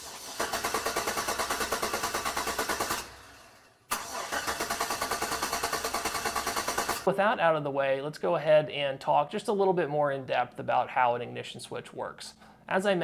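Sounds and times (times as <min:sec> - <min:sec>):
car engine cranking: 0:00.0 - 0:03.2, 0:03.9 - 0:07.0.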